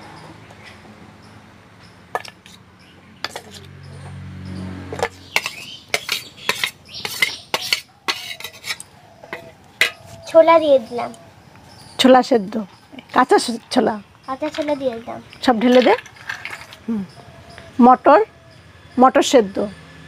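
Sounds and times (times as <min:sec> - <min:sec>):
spoon scraping a steel bowl: 0:03.2 - 0:03.7, 0:05.0 - 0:10.3.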